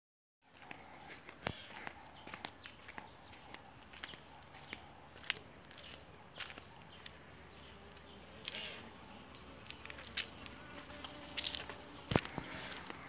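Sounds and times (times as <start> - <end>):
bees buzzing: 6.3 - 13.0.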